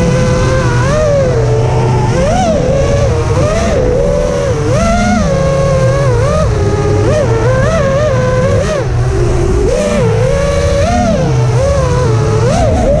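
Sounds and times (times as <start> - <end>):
drone motors whining: 0.0 - 13.0
low wind rush: 0.0 - 13.0.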